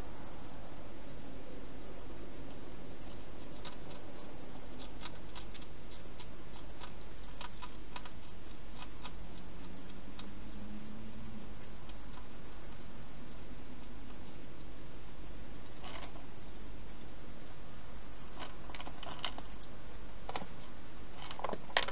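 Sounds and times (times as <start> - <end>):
hedgehog crunching food: 3.0 - 14.8, 18.3 - 21.9.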